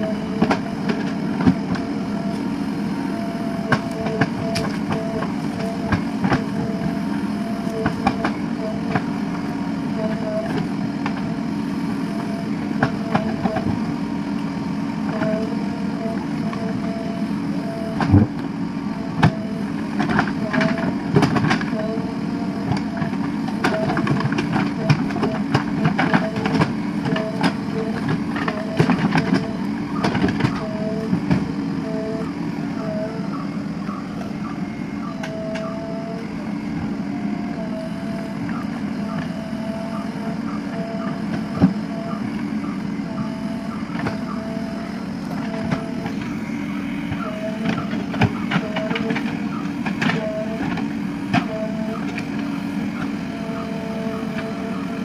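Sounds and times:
diesel engine running: 0.0s - 55.0s
short beeps: 3.1s - 8.9s, 12.1s - 13.7s, 15.1s - 18.0s, 24.8s - 29.7s, 30.5s - 31.1s, 31.8s - 36.4s, 37.5s - 38.4s, 39.0s - 46.2s, 47.1s - 50.7s, 51.4s - 52.2s.

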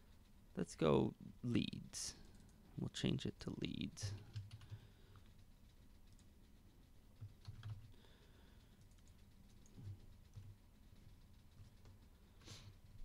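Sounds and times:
keyboard and mouse clicks: 7.2s - 7.9s.

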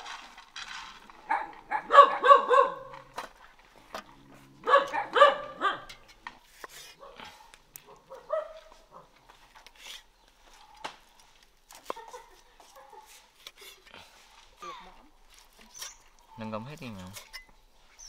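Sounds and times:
dog barking: 1.3s - 3.0s, 4.6s - 6.0s, 7.0s - 9.1s
dog yelping: 1.3s - 3.0s, 4.6s - 6.0s.

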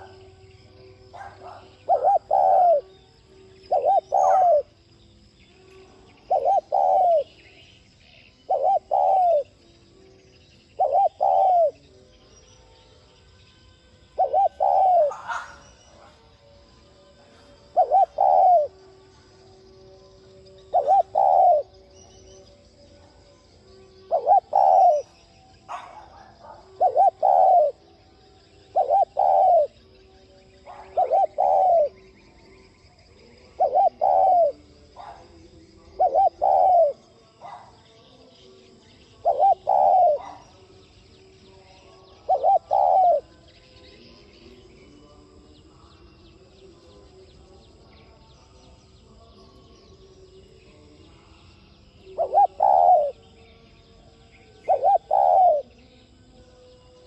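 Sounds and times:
dove cooing: 0.0s - 4.8s, 6.1s - 7.7s, 8.3s - 9.6s, 10.7s - 11.9s, 14.1s - 16.4s, 17.2s - 19.5s, 20.6s - 22.4s, 24.0s - 28.0s, 28.7s - 30.0s, 30.6s - 32.1s, 33.2s - 37.9s, 39.0s - 40.7s, 41.8s - 43.3s, 52.1s - 53.2s, 54.6s - 55.8s.

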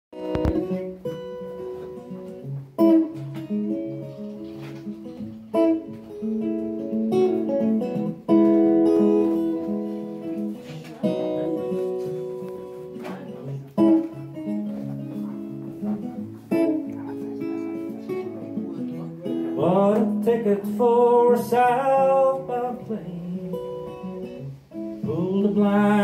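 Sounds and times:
acoustic guitar chords: 0.1s - 26.0s.

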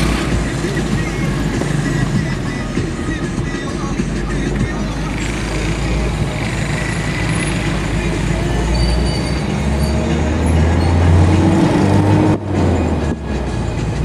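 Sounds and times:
low engine drone: 0.0s - 14.0s
road noise inside moving car: 0.0s - 14.0s.

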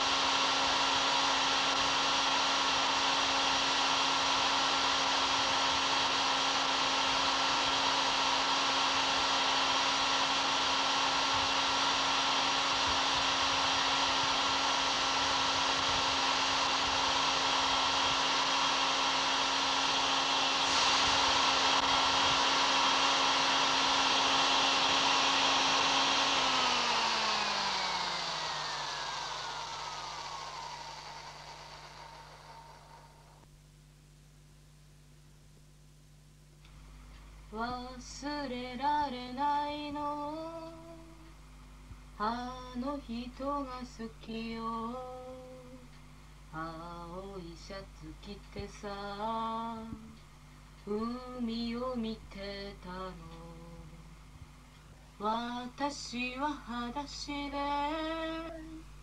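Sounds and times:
electric drill motor whine: 0.0s - 33.5s.

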